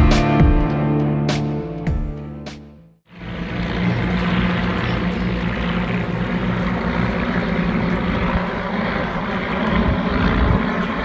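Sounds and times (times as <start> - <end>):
propeller plane engines droning: 3.1 - 11.0.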